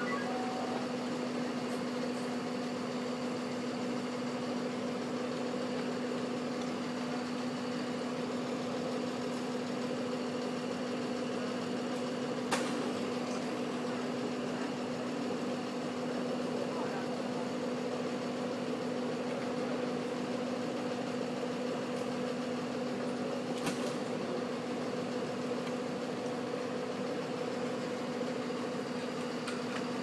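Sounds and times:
diesel engine humming: 0:00.0 - 0:07.2.

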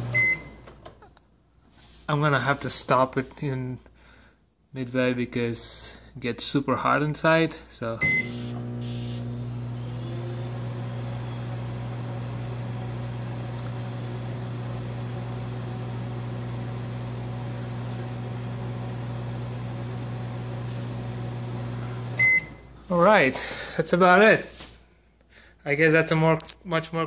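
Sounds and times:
microwave beep: 0:00.0 - 0:00.7, 0:08.0 - 0:12.0, 0:21.9 - 0:22.7
microwave oven humming: 0:00.0 - 0:00.7, 0:08.0 - 0:22.8.

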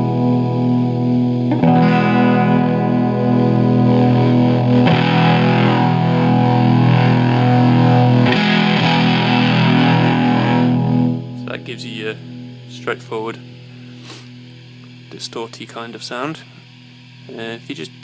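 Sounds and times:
distorted fuzz electric guitar chords: 0:00.0 - 0:18.0.

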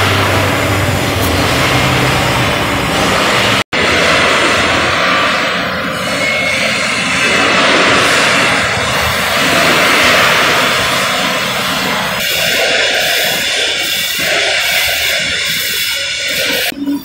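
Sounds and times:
industrial shop roar: 0:00.0 - 0:17.0.

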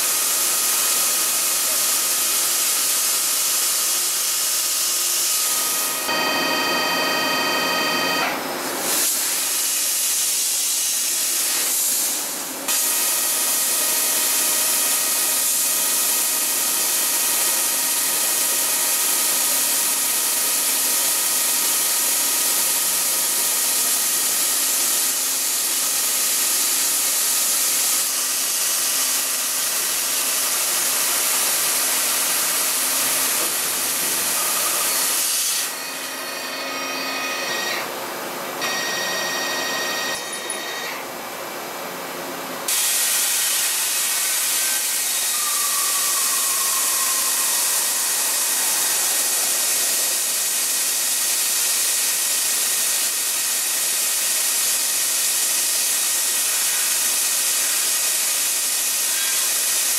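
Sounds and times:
machine whining: 0:42.7 - 0:53.2
coolant spray hiss: 0:42.7 - 0:59.0.

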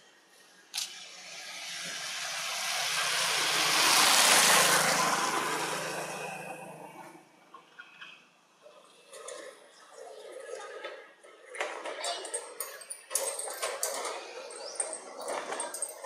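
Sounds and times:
motor vehicle passing by: 0:00.8 - 0:10.6.

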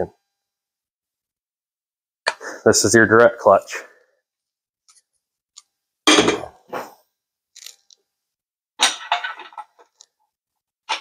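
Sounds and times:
metal parts clinking and rattling: 0:07.6 - 0:08.0, 0:08.8 - 0:10.1.

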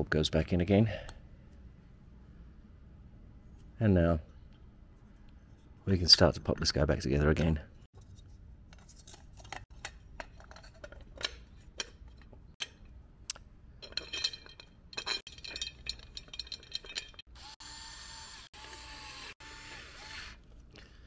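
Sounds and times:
lamp parts clicking and clinking: 0:08.7 - 0:12.9, 0:13.8 - 0:17.3.

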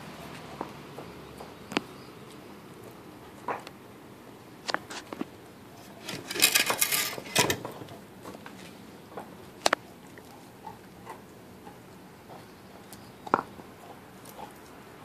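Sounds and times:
puppy gnawing a bone: 0:07.7 - 0:15.0.

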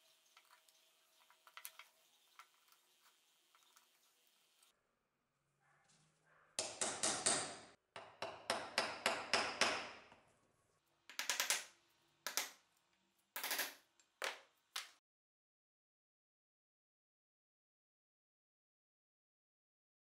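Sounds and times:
hammer striking metal: 0:06.6 - 0:10.1.

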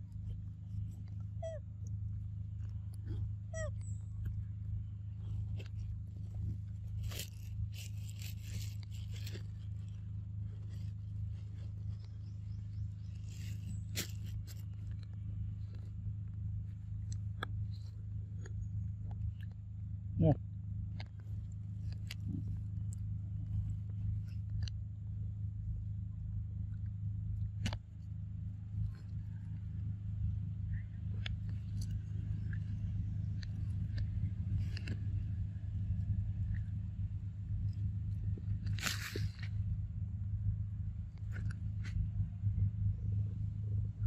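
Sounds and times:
steady low hum: 0:00.0 - 0:44.0
scraping and crunching: 0:05.0 - 0:19.6, 0:31.0 - 0:39.9.

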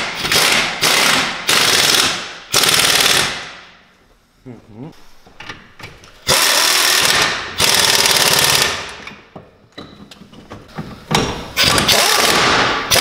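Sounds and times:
pneumatic impact wrench hammering: 0:00.0 - 0:03.6, 0:06.2 - 0:09.2, 0:11.1 - 0:13.0.

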